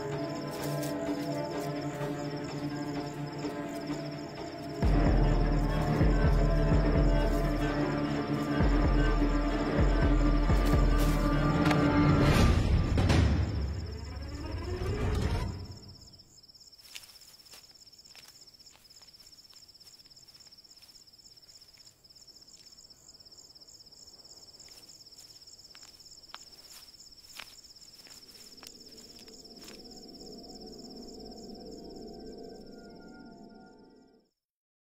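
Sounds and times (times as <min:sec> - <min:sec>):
low musical drone: 0:00.0 - 0:13.1
crickets trilling: 0:00.0 - 0:34.3.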